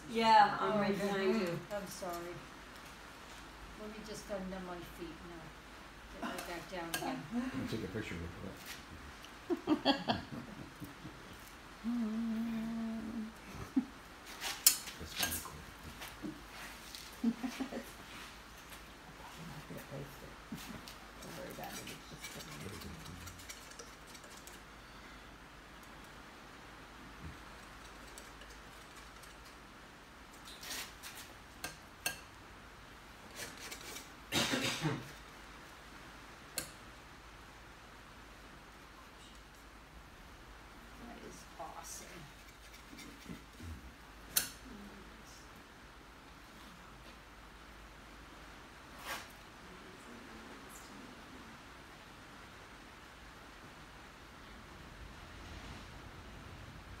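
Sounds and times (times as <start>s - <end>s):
person humming: 11.8s - 13.8s
painting tools clicking and scraping: 20.7s - 24.7s, 42.3s - 43.6s.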